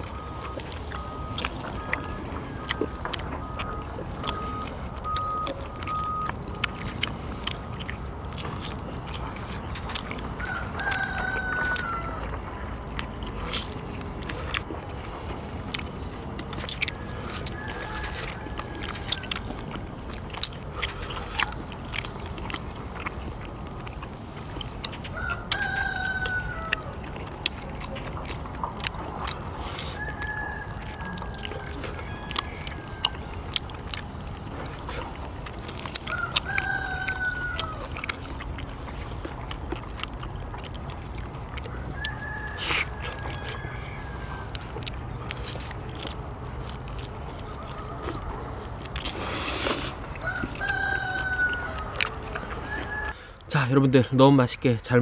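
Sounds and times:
rooster crowing: 0:00.0 - 0:06.2, 0:10.4 - 0:12.8, 0:16.8 - 0:19.8, 0:25.1 - 0:27.2, 0:29.3 - 0:33.7, 0:36.0 - 0:38.1, 0:41.6 - 0:46.2, 0:47.0 - 0:48.6, 0:49.6 - 0:53.4
clicks and taps of eating: 0:00.0 - 0:43.6.

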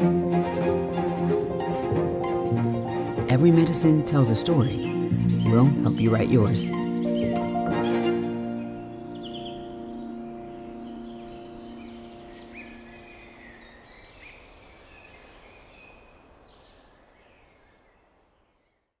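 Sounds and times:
held music chord: 0:00.0 - 0:13.8
birds chirping: 0:00.0 - 0:18.8.

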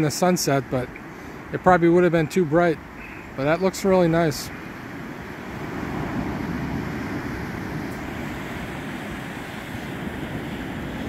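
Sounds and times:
surf breaking on sandy beach: 0:03.4 - 0:11.0.

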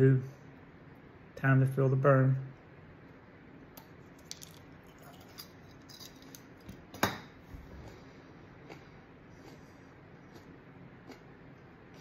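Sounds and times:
chili pepper being chewed: 0:07.6 - 0:12.0.

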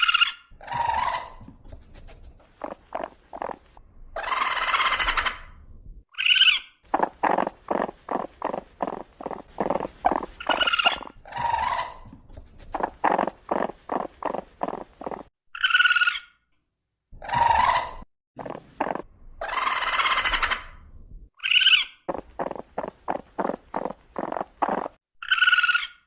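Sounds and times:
raccoon high squeals: 0:00.0 - 0:01.5, 0:04.2 - 0:05.6, 0:10.1 - 0:12.2, 0:17.2 - 0:18.0
raccoon hissing screeches: 0:00.0 - 0:01.6, 0:04.2 - 0:05.6, 0:06.2 - 0:14.8, 0:18.8 - 0:20.8
raccoon churring: 0:00.0 - 0:05.6, 0:06.2 - 0:16.2, 0:17.2 - 0:20.8, 0:21.4 - 0:25.9.

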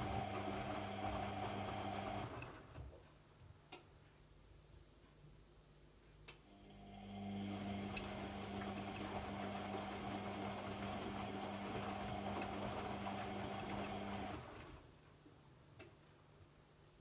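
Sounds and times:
washing machine drum hum: 0:00.0 - 0:03.0, 0:06.9 - 0:14.9.

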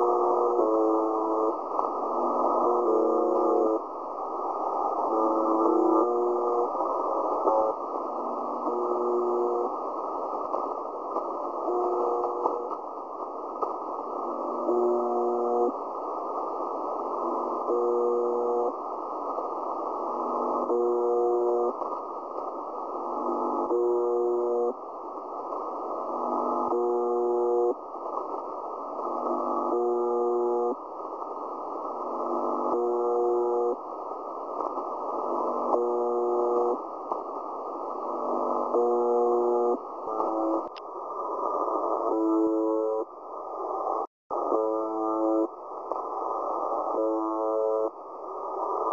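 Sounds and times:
buzzing radio tone: 0:00.0 - 0:01.6, 0:02.4 - 0:03.8, 0:05.1 - 0:06.7, 0:08.7 - 0:09.7, 0:11.6 - 0:12.8, 0:14.6 - 0:15.8, 0:17.6 - 0:18.8, 0:20.5 - 0:21.8, 0:23.3 - 0:24.8, 0:26.3 - 0:27.8, 0:29.4 - 0:30.8, 0:32.4 - 0:33.8, 0:35.5 - 0:36.8, 0:38.4 - 0:40.7, 0:41.6 - 0:43.1, 0:44.3 - 0:45.6, 0:46.8 - 0:48.0
radio static hiss: 0:00.0 - 0:48.9.

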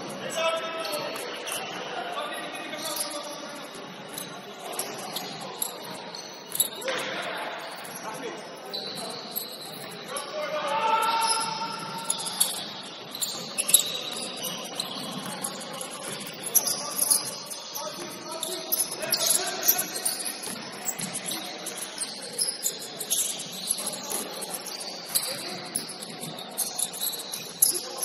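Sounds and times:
shoes squeaking on hardwood floor: 0:00.0 - 0:28.0.

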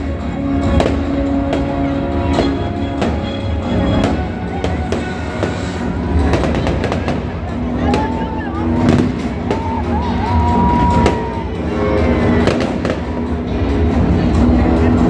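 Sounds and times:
loud music with heavy bass: 0:00.0 - 0:15.0
fireworks bangs: 0:00.6 - 0:09.9, 0:12.3 - 0:13.4.

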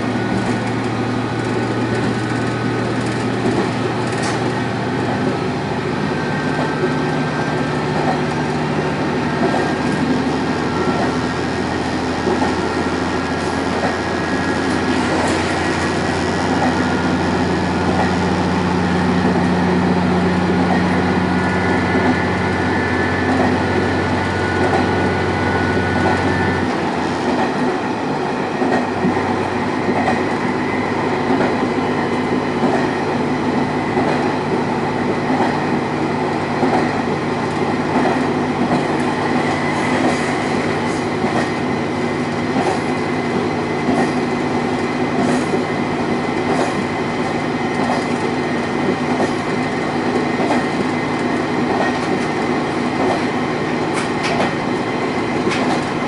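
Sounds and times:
diesel engine hum and whine: 0:00.0 - 0:56.0.

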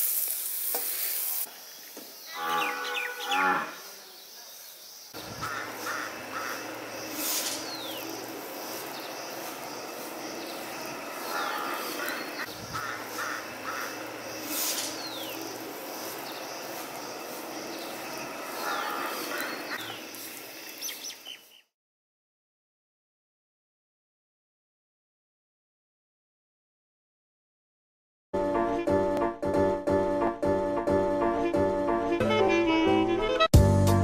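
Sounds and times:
background hiss: 0:00.0 - 0:02.6, 0:03.7 - 0:21.6.

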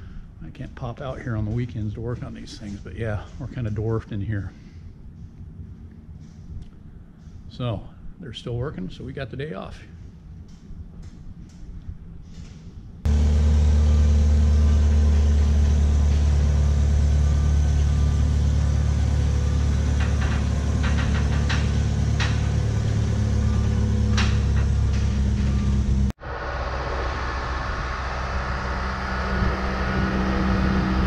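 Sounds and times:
machine humming: 0:13.0 - 0:31.0.

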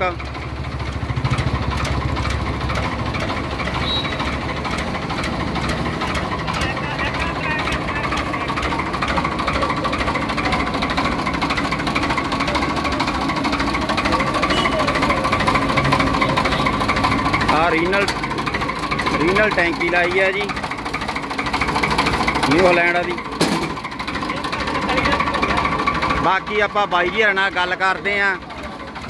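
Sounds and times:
diesel tractor engine idling: 0:00.0 - 0:29.0.

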